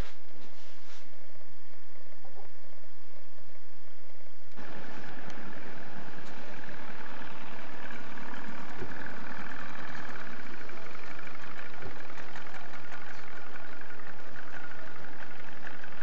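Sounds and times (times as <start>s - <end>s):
constant hiss: 0.0s - 16.0s
boat engine running: 4.6s - 16.0s.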